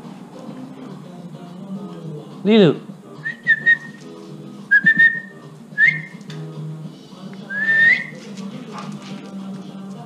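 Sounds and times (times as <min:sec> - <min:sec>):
person whistling rising notes: 0:03.2 - 0:04.0, 0:04.7 - 0:06.2, 0:07.5 - 0:08.2.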